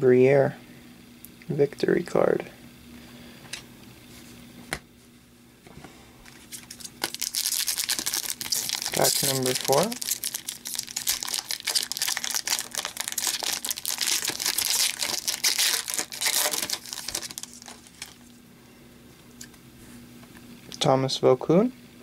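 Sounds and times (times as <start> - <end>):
foil wrapper crinkling: 6.3 - 18.4
wrapper being torn open: 6.4 - 18.3.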